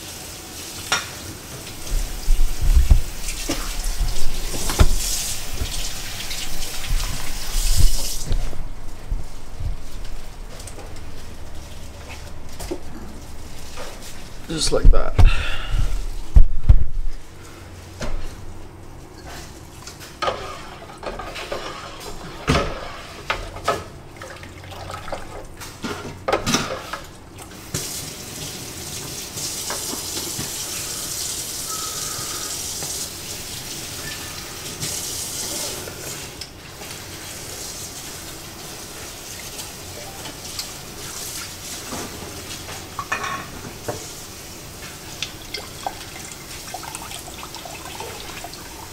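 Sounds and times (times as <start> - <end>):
water rushing hiss: 0.0 - 8.4, 27.7 - 36.4.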